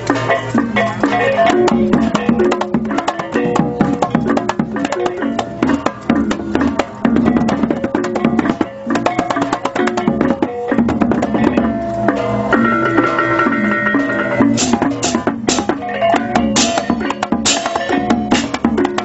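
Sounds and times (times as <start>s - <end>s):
cymbals and drums striking: 0.0s - 19.0s
ringing gong tones: 10.7s - 18.4s.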